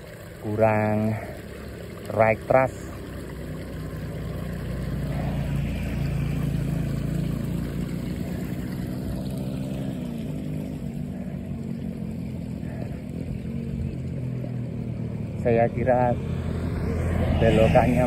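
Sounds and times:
vehicle engine running: 0.0s - 18.0s.

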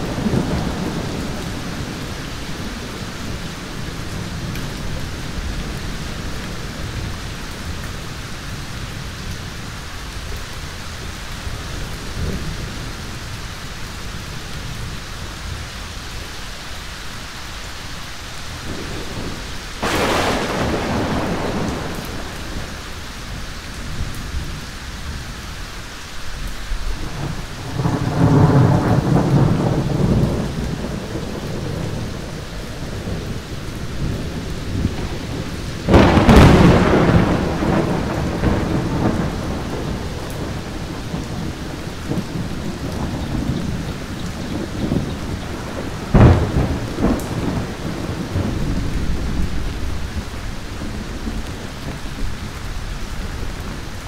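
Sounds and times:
low rumble of thunder: 0.0s - 15.7s, 18.5s - 25.4s, 26.6s - 54.0s
steady rain: 0.0s - 54.0s
sharp thunder crack: 18.7s - 22.9s, 34.0s - 50.1s.

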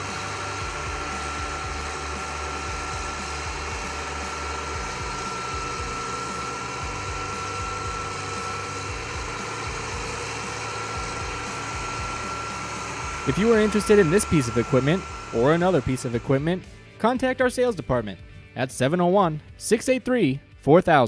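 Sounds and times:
combine harvester diesel engine: 0.0s - 16.8s
high whine: 0.0s - 16.9s.

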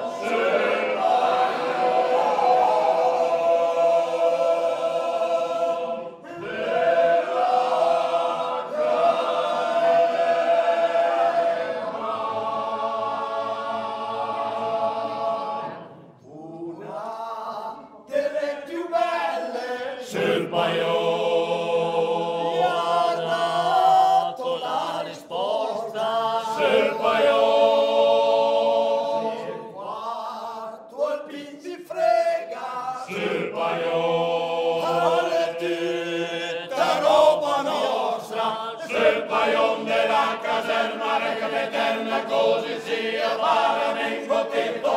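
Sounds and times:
men singing unaccompanied in parts: 16.3s - 44.9s.

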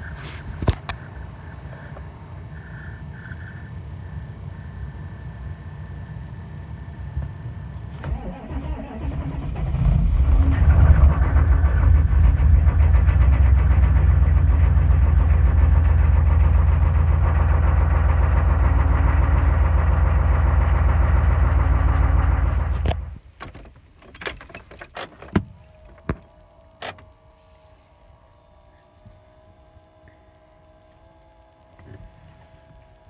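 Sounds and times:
diesel engine idling: 0.0s - 23.4s
starter cranking: 8.0s - 27.1s.

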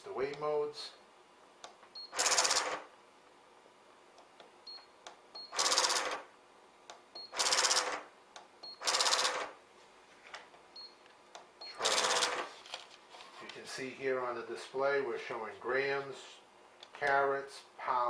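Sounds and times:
printer buzzing: 2.0s - 2.9s, 5.5s - 6.3s, 7.3s - 8.1s, 8.8s - 9.6s, 11.7s - 12.6s.

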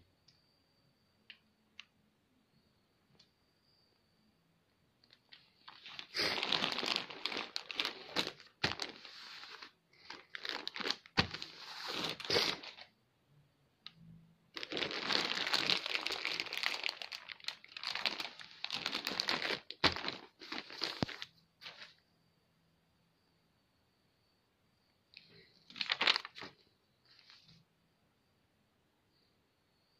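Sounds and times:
plastic film crinkling: 5.1s - 12.9s, 14.5s - 21.9s, 25.7s - 26.6s.

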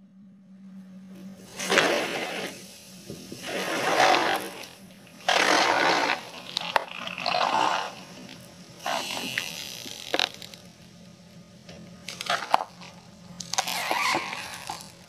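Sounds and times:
plastic bottle crackling: 3.4s - 10.6s, 12.0s - 15.0s.

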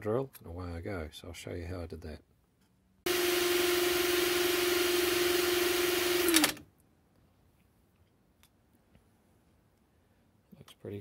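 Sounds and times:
electric drill running: 3.1s - 6.6s.

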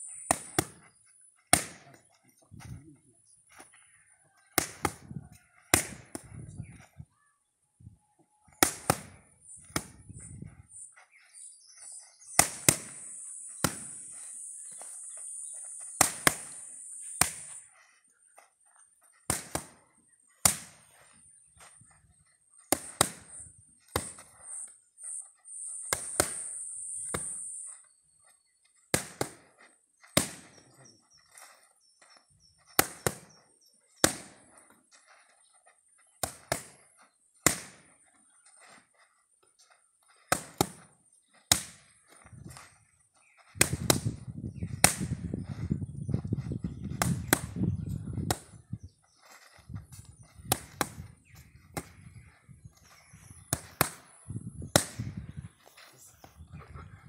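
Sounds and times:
boxing gloves smacking mitts: 5.7s - 6.3s, 19.2s - 19.8s, 20.4s - 20.8s, 25.9s - 26.5s, 30.2s - 30.6s, 32.7s - 33.3s, 37.4s - 37.8s, 40.2s - 40.8s.

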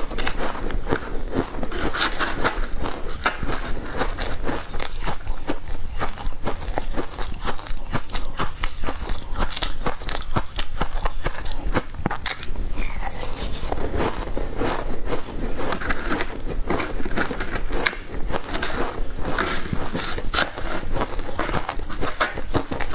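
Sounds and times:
shaved ice crunching: 12.8s - 22.9s.

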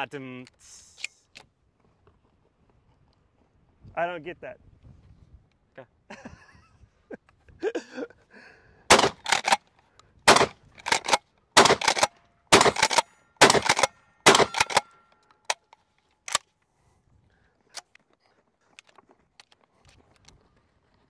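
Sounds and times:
pump action racking: 8.9s - 9.6s, 10.3s - 14.9s
shotgun shots: 8.9s - 9.6s, 10.3s - 14.9s
mechanical clicks: 10.8s - 14.8s.

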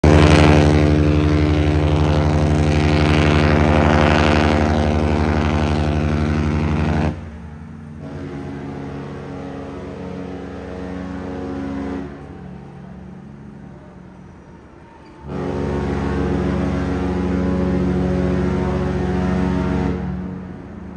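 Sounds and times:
deep ship horn blast: 0.0s - 14.1s, 15.2s - 20.9s
quieter ship horn blast: 0.0s - 20.9s.

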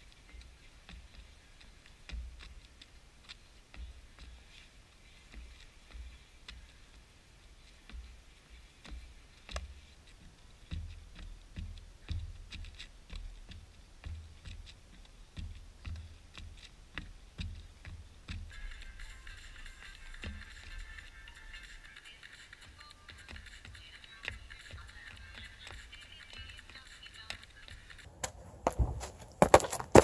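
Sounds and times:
shoes tapping a ball: 0.0s - 7.1s, 7.7s - 18.6s, 22.6s - 30.0s
low thuds: 28.1s - 30.0s.

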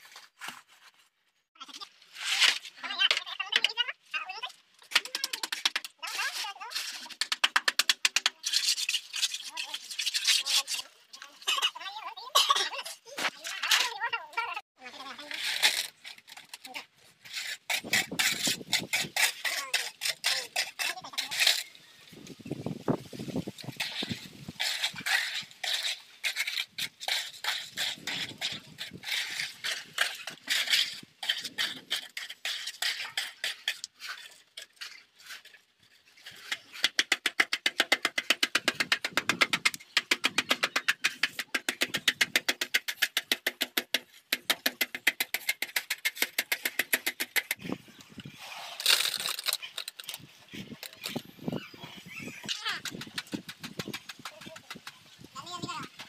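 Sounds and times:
tools scraping wet concrete: 1.6s - 3.8s, 4.8s - 22.6s, 23.2s - 56.0s
fast tapping strokes on concrete: 4.9s - 10.9s, 15.1s - 21.7s, 23.3s - 35.6s, 36.2s - 56.0s.

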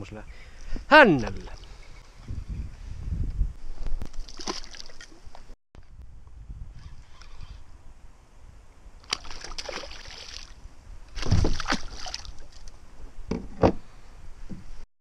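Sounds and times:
fish thrashing in water: 4.1s - 5.2s, 9.0s - 10.6s, 11.2s - 12.7s.

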